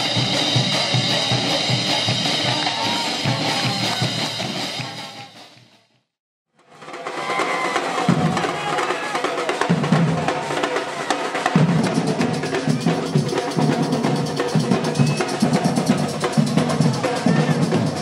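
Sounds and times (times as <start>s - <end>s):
deep bass drum beats: 0.0s - 5.8s
rapid snare and hand percussion: 0.0s - 18.0s.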